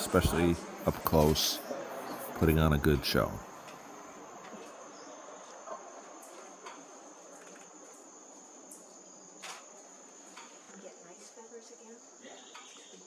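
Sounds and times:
insects calling high-pitched: 0:00.0 - 0:13.0.

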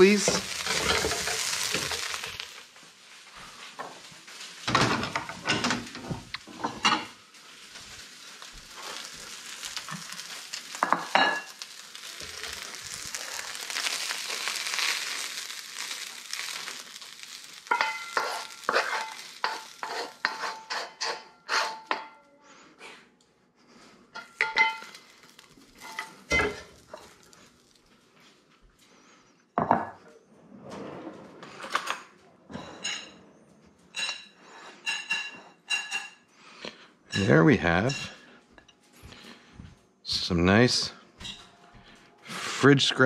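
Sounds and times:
rice sizzling in a wok: 0:00.0 - 0:22.0, 0:24.2 - 0:28.3
wooden spatula scraping wok: 0:00.0 - 0:22.1, 0:24.2 - 0:27.6.

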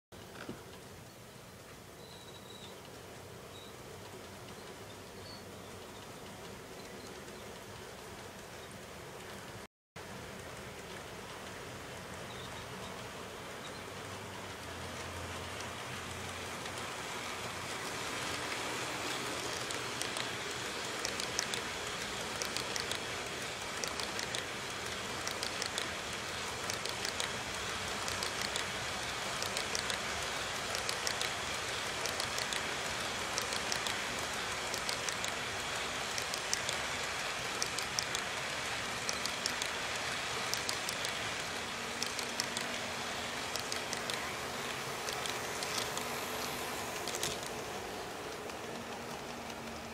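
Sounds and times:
wheels clicking on rails: 0:00.2 - 0:49.9
model train wheels hissing on track: 0:10.2 - 0:49.9.

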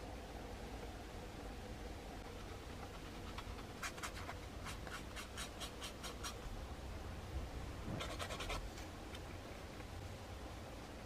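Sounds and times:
sanding stick scratching plastic: 0:02.3 - 0:06.4, 0:08.0 - 0:08.6.

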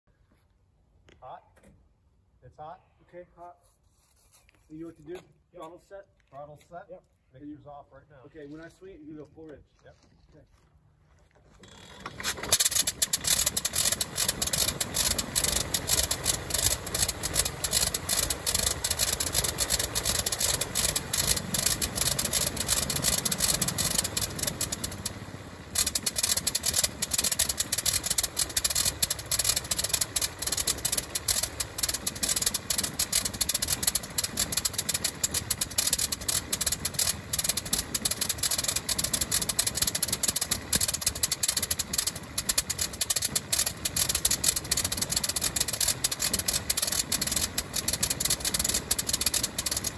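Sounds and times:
rotary aircraft engine running: 0:12.0 - 0:49.9.

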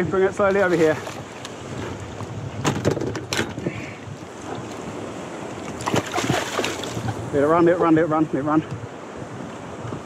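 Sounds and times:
water lapping at kayak hull: 0:00.0 - 0:07.7
wind buffeting microphone: 0:00.0 - 0:10.0.

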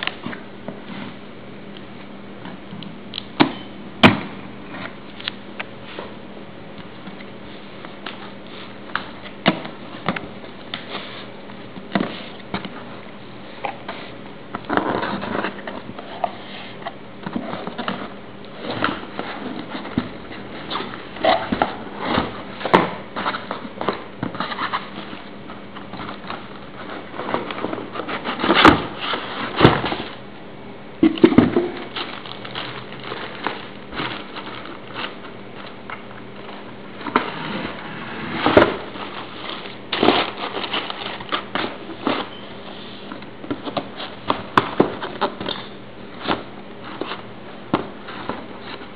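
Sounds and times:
cardboard box scraping and rustling: 0:37.0 - 0:44.2.

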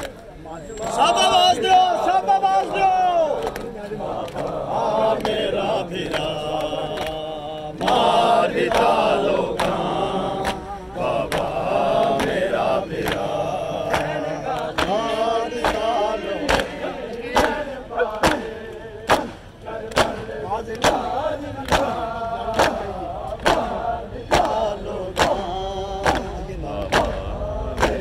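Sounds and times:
men chanting a lament: 0:00.0 - 0:28.0
hand slaps on chests: 0:06.1 - 0:07.2, 0:07.8 - 0:08.1, 0:09.6 - 0:10.6, 0:11.3 - 0:11.6, 0:13.0 - 0:28.0.

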